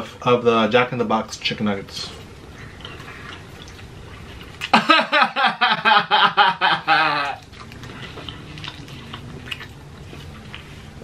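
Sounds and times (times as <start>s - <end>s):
man laughing loudly: 4.7s - 7.4s
faint mouth sounds and clicks: 7.2s - 10.7s.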